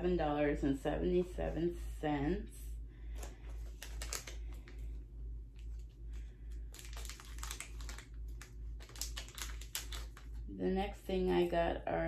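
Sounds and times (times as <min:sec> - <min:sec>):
steady low hum: 0:00.0 - 0:12.0
plastic packaging crinkling: 0:03.2 - 0:04.9, 0:05.5 - 0:10.4.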